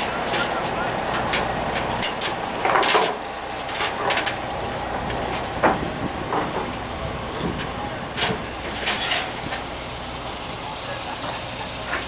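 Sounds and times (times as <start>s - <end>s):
clanks and knocks: 0.0s - 6.8s, 7.4s - 9.7s
engine-like rumble: 0.0s - 12.0s.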